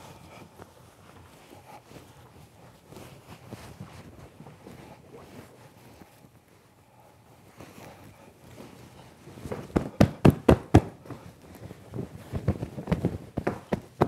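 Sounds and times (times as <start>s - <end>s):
cushion being patted: 9.4s - 14.0s.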